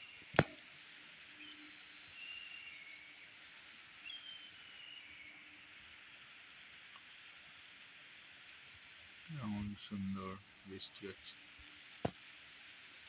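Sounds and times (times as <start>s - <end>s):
birds high calls: 0.0s - 5.8s
rain falling on pond: 0.0s - 13.0s.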